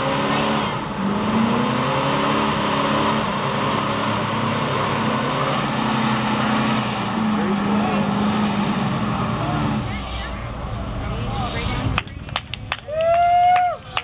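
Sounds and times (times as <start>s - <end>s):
car engine at high revs: 0.0s - 12.7s.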